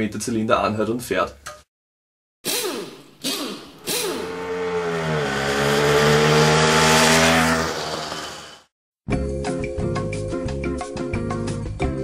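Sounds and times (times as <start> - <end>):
engine revving: 2.5 - 8.7.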